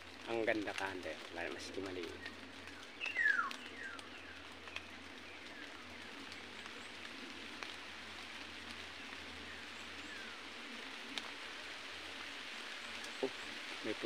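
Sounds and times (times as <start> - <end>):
forest background hiss: 0.0 - 14.0
bird calls falling in pitch: 3.0 - 4.0.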